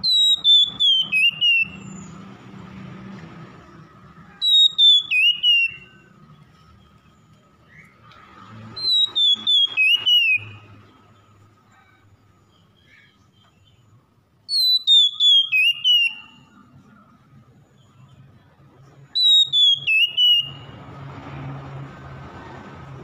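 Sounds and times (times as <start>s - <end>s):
bird singing whistled phrases: 0.0s - 2.2s, 4.4s - 6.2s, 8.8s - 10.7s, 14.5s - 16.7s, 19.1s - 20.8s.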